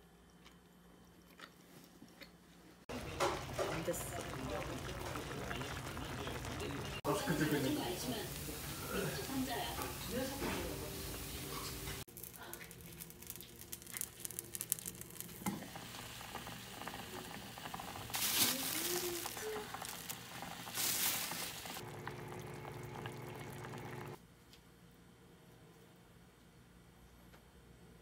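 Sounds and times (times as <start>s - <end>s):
stew bubbling and crackling: 0.0s - 7.1s, 11.2s - 24.2s
steady hum: 21.7s - 24.2s.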